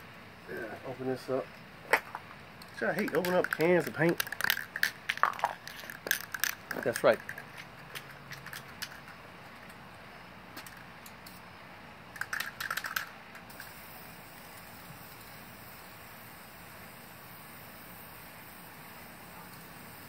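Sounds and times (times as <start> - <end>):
faint spray paint hiss: 0.0 - 20.0
spray can rattling: 1.9 - 9.8, 12.1 - 16.0.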